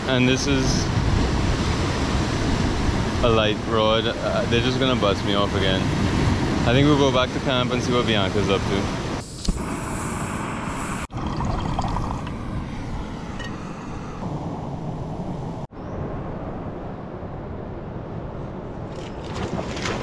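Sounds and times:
wind on microphone: 0:08.8 - 0:20.0.

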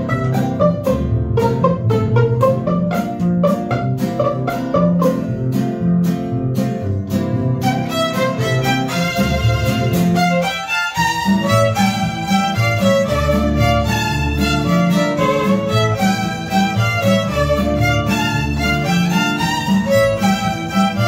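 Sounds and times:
violins holding melody: 0:00.0 - 0:05.5, 0:07.6 - 0:21.0
mariachi ensemble playing: 0:00.0 - 0:21.0.

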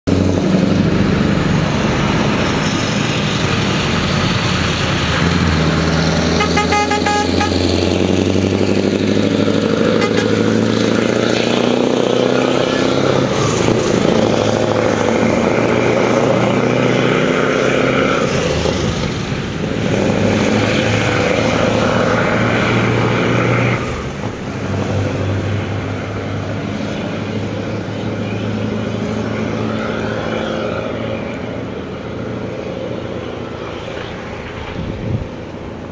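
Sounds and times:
truck engine pulling away: 0:00.1 - 0:35.9
horn toots: 0:06.2 - 0:08.0, 0:09.7 - 0:10.8.

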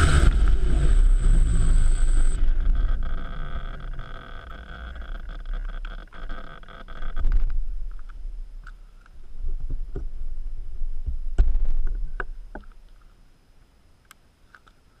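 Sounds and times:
wind rumble on microphone: 0:00.0 - 0:12.8.

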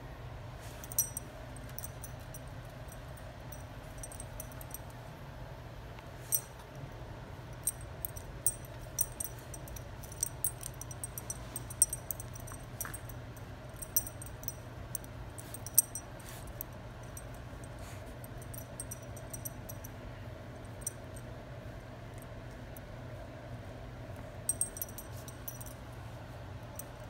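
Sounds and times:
steady low hum: 0:00.0 - 0:27.0
dog tags jingling: 0:00.8 - 0:04.8, 0:07.6 - 0:17.4, 0:18.4 - 0:19.9, 0:24.5 - 0:25.8.

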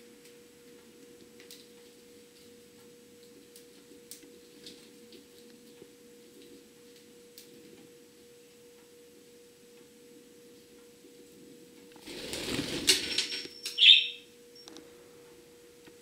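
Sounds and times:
faint steady hum: 0:00.0 - 0:16.0
bird wings flapping: 0:12.0 - 0:13.5
budgie chirp: 0:13.6 - 0:14.2.

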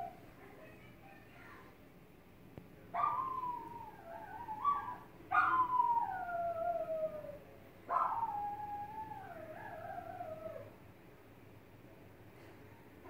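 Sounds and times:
dog howling: 0:03.0 - 0:10.8.

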